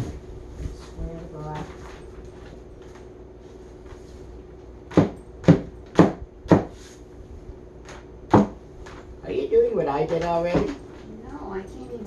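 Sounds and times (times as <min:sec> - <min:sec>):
hammer knocking on particleboard: 0:04.9 - 0:06.7.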